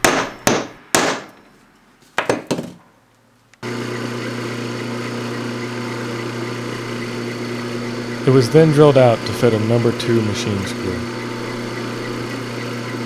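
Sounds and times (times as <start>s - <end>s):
center punch striking metal: 0.0s - 1.4s
drill press motor hum: 3.6s - 13.0s.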